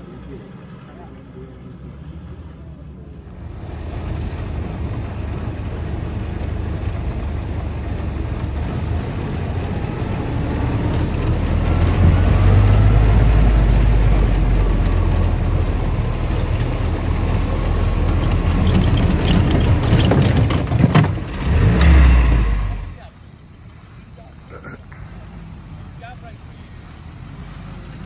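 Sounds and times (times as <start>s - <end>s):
jeep engine rumble: 0.0s - 28.0s
knocks and clatter: 3.4s - 22.4s.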